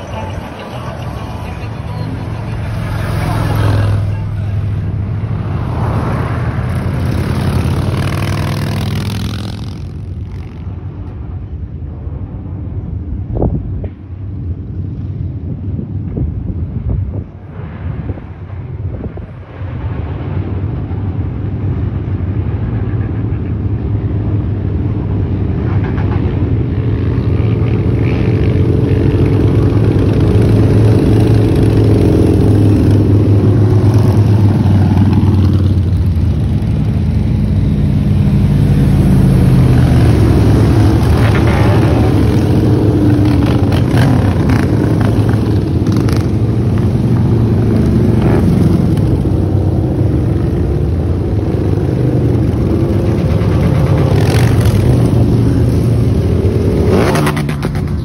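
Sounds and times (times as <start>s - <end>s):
motorcycles riding past revving: 0.0s - 10.7s, 25.8s - 58.0s.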